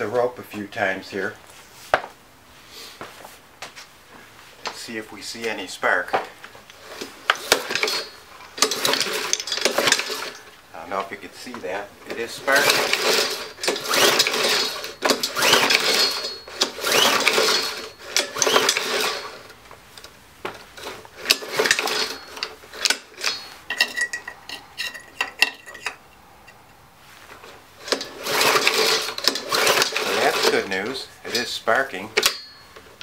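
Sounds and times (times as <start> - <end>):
pull-start rope cranking engine: 6.8 - 10.5, 12.0 - 20.1, 20.8 - 26.0, 27.8 - 32.6.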